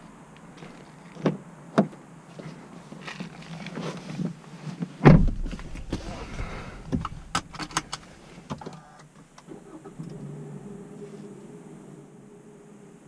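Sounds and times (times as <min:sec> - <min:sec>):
clicks and rattles in car cabin: 0:03.0 - 0:10.2
car door shutting: 0:05.0 - 0:11.4
steady low hum: 0:09.5 - 0:13.0.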